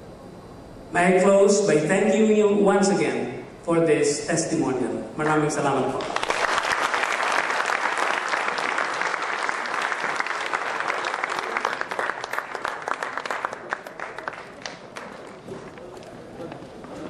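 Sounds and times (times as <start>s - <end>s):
audience applauding: 6.0s - 17.0s.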